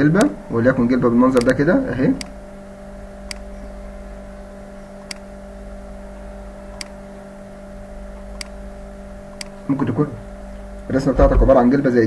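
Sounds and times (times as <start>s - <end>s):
low electrical hum: 0.0s - 12.0s
computer mouse clicks: 3.3s - 3.5s, 5.0s - 5.3s, 8.4s - 8.6s.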